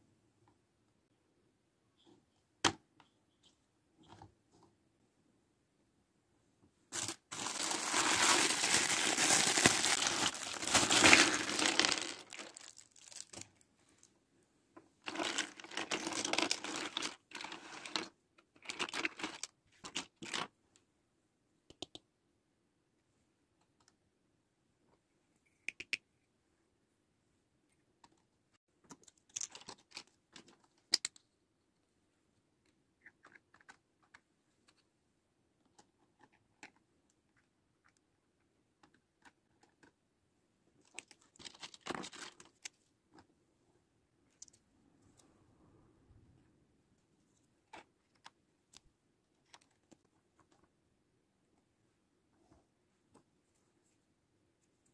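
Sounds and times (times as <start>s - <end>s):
plastic packaging crinkling: 6.9s - 13.6s.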